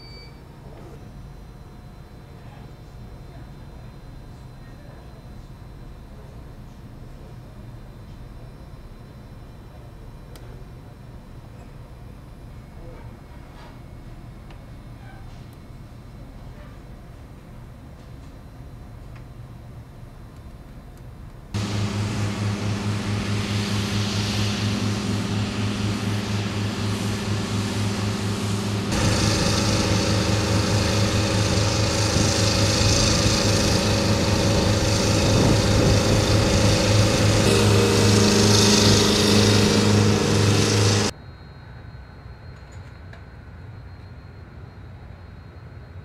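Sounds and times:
small engine running: 21.6 - 41.1.

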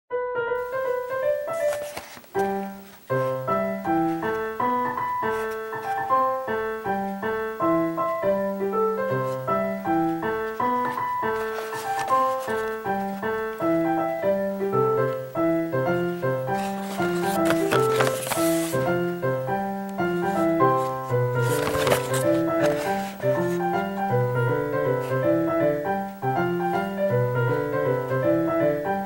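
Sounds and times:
piano music: 0.1 - 29.0.

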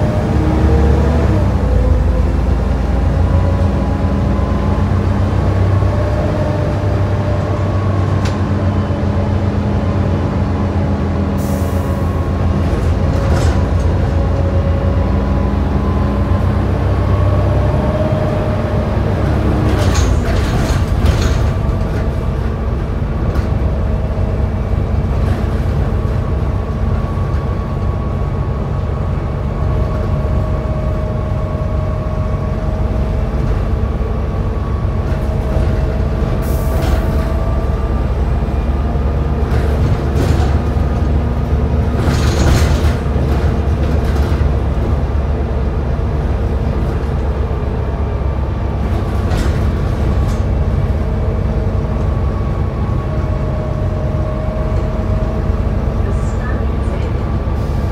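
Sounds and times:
bus engine and road rumble: 0.0 - 57.9.

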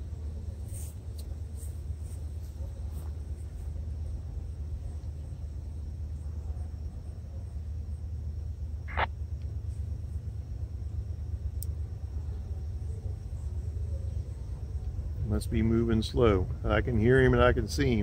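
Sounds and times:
distant freight train rumble: 0.0 - 18.0.

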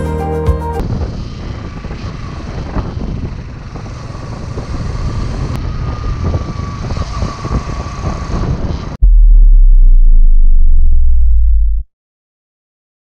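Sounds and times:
riding noise rush: 9.0 - 11.8
thin steady whine: 9.0 - 11.8.

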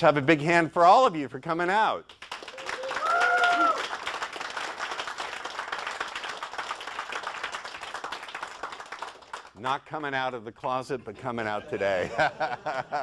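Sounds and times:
audience applauding: 2.1 - 9.6.

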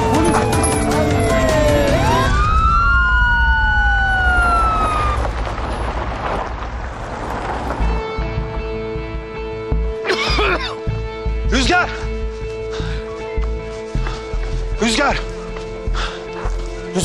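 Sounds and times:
dramatic music with percussive hits: 0.0 - 2.8
police siren wailing: 0.0 - 5.6.

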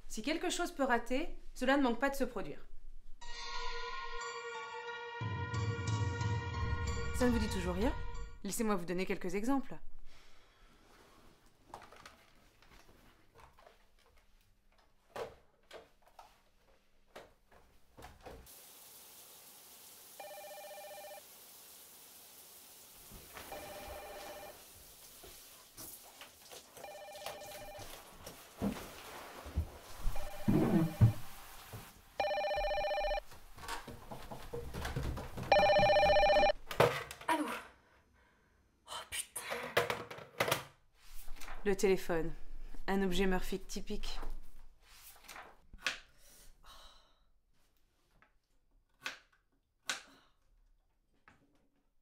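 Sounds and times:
faint steady hiss: 18.2 - 33.2
telephone ringing: 20.2 - 21.2, 23.4 - 24.6, 26.8 - 28.0, 30.2 - 31.2, 32.2 - 33.3, 35.5 - 36.6
faint knocks and clunks: 33.6 - 37.3.

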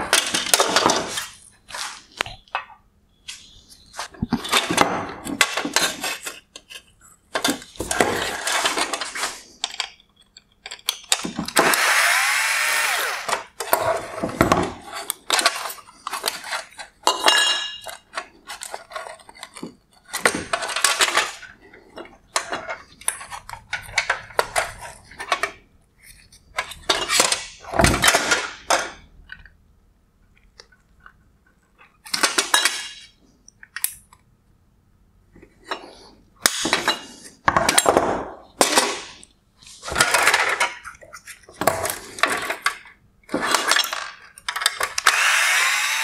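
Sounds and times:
plastic parts clicking and scraping: 3.3 - 11.9, 12.6 - 29.6, 30.2 - 34.3, 35.4 - 46.0
small power tool whirring: 11.6 - 13.4, 45.0 - 46.0.

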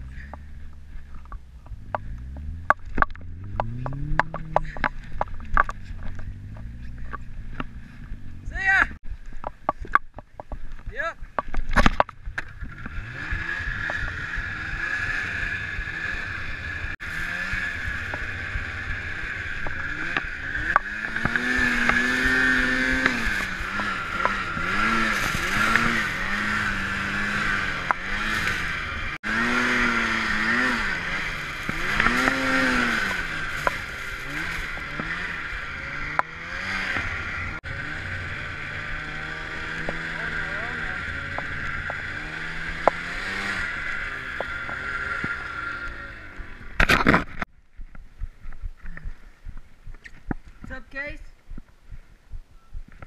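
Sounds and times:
snowmobile engine revving: 1.6 - 9.0, 12.6 - 47.3.

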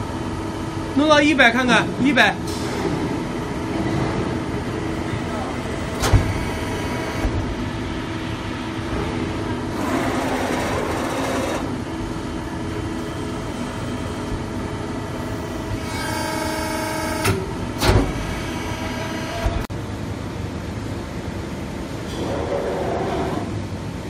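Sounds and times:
hydraulic power unit humming: 0.0 - 24.0
pitched machine whine: 9.7 - 19.7.

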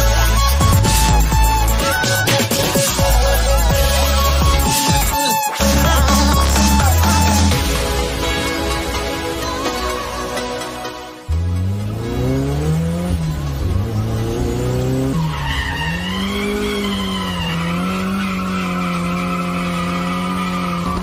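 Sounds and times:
car engine revving: 0.0 - 21.0
tyres squealing: 14.6 - 21.0.

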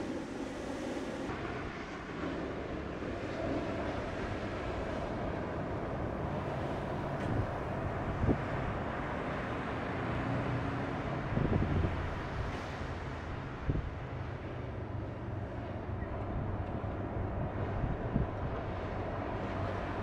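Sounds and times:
wind buffeting microphone: 2.8 - 9.1, 11.2 - 14.5, 15.5 - 20.0.

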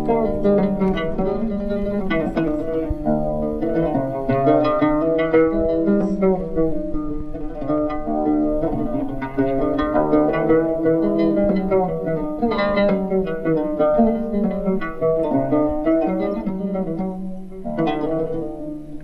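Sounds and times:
plucked string melody: 0.0 - 19.0.

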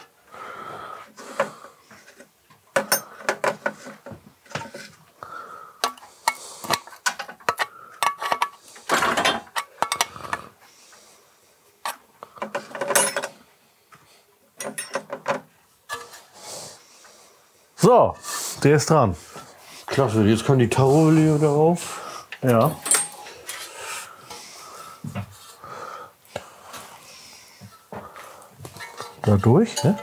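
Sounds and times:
metal tools clinking and scraping: 2.8 - 5.0, 5.9 - 10.1, 11.8 - 13.4, 14.6 - 16.3, 22.3 - 24.5, 28.6 - 30.0.

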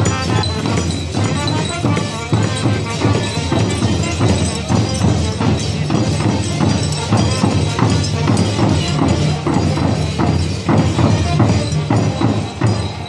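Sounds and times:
trumpets and clarinet: 0.0 - 4.4
steady percussion beat: 0.0 - 13.0.

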